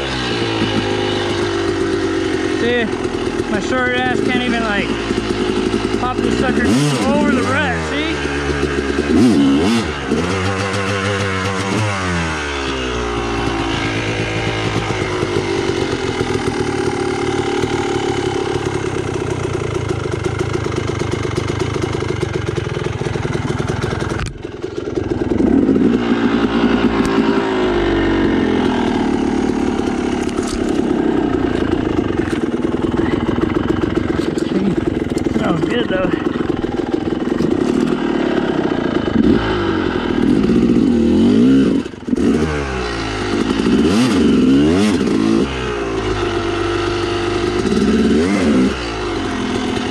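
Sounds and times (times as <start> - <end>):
dirt bike engine revving: 0.0 - 49.9.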